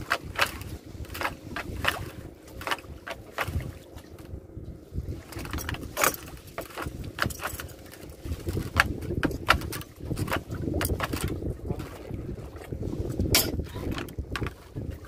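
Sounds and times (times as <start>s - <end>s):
water: 0.0s - 15.0s
wind: 0.0s - 15.0s
light clinks and knocks: 5.3s - 11.3s.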